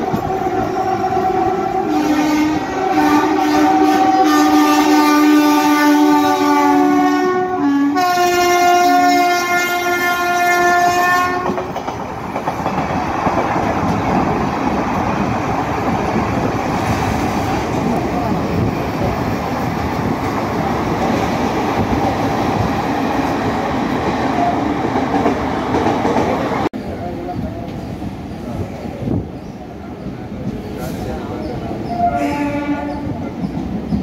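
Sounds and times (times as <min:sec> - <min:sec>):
train rumbling on rails: 0:00.0 - 0:34.0
train horn blasts: 0:00.6 - 0:11.6, 0:31.9 - 0:33.2.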